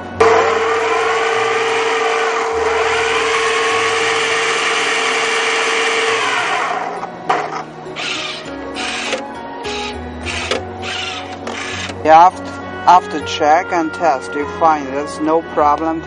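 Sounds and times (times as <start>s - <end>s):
electric motors whirring: 0.0s - 12.1s.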